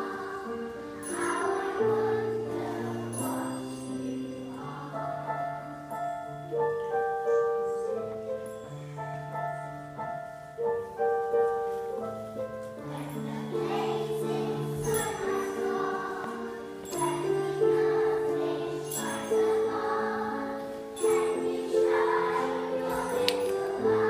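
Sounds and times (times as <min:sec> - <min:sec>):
children's choir singing: 0:00.0 - 0:08.0, 0:12.8 - 0:24.0
upright piano playing: 0:00.0 - 0:24.0.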